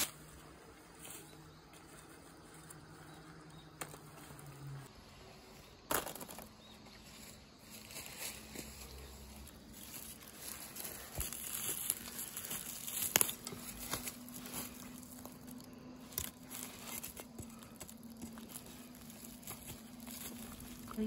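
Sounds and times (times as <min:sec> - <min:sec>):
dry leaves rustling and crunching: 0:00.0 - 0:21.0.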